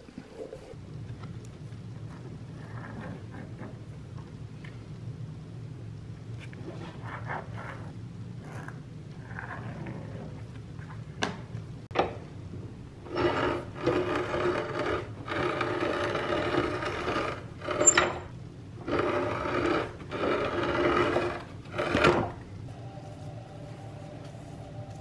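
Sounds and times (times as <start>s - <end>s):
rotary cutting machine cutting board: 13.1s - 22.4s.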